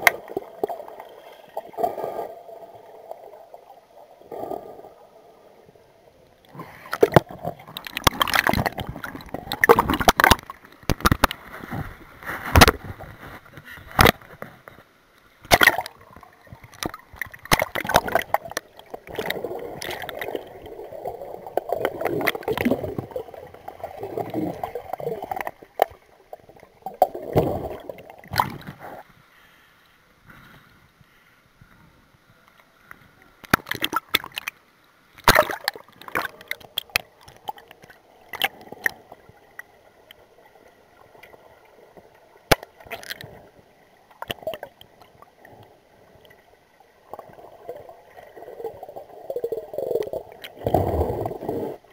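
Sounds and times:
underwater gurgling and bubbles: 0.0s - 29.3s, 30.2s - 51.9s
underwater sharp clicks and knocks: 6.9s - 11.5s, 12.5s - 14.8s, 15.4s - 20.3s, 33.4s - 34.6s, 35.2s - 39.0s, 41.2s - 43.4s, 44.2s - 46.4s.

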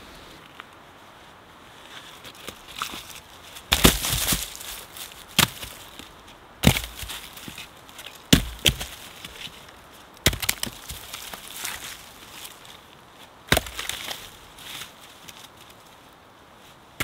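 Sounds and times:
axe chopping wood: 3.7s - 4.6s, 5.3s - 5.8s, 6.6s - 7.6s, 8.3s - 9.4s, 10.2s - 11.8s, 13.5s - 14.2s.

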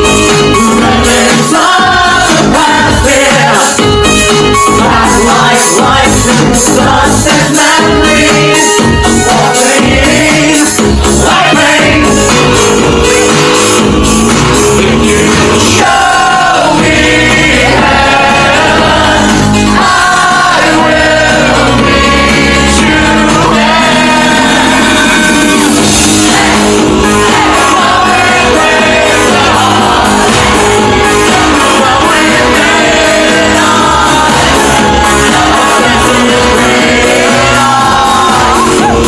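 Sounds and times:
electronic beat: 0.0s - 39.0s
synthesizers: 0.0s - 39.0s
man singing into a microphone: 4.8s - 12.3s, 21.7s - 25.8s, 31.2s - 38.9s.

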